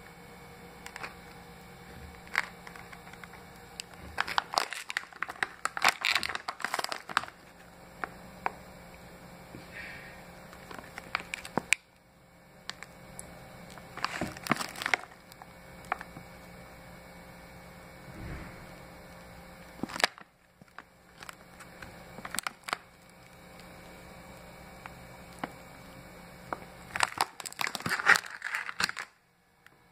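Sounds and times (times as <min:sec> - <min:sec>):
plastic bag crinkling: 0:02.1 - 0:07.7, 0:10.5 - 0:11.8, 0:13.6 - 0:16.1, 0:19.8 - 0:23.4, 0:26.5 - 0:29.2.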